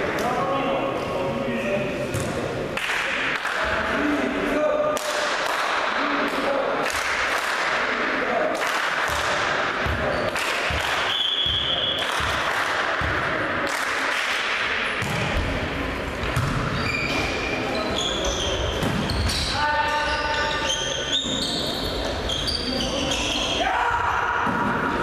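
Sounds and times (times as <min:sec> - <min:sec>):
players' voices in hall: 0:00.0 - 0:25.0
referee's whistle: 0:11.0 - 0:12.0
ball bouncing on wooden floor: 0:16.2 - 0:16.7.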